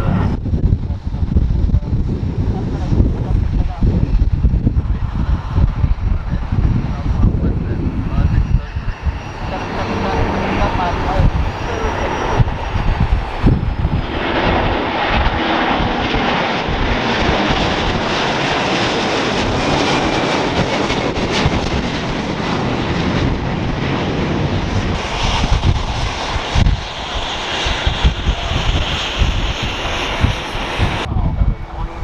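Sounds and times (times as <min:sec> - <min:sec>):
jet airliner engines rumbling: 0:00.0 - 0:32.0.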